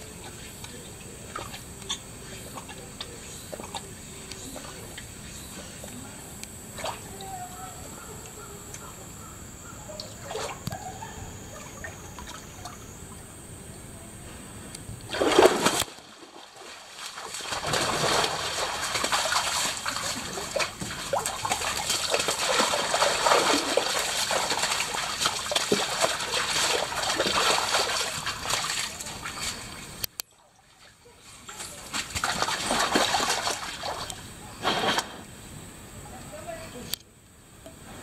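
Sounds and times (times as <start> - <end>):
tiger splashing in water: 15.1 - 30.0, 30.6 - 35.1.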